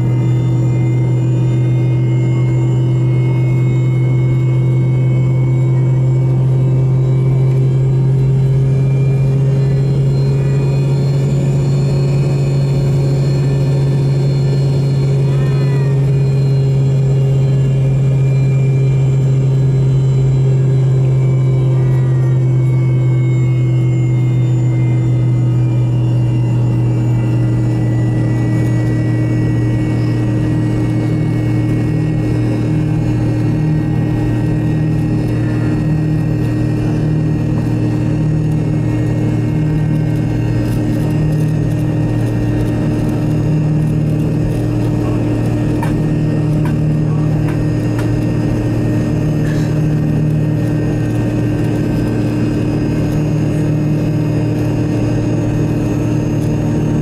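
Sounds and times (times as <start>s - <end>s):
jet engine drone with whine: 0.0s - 57.0s.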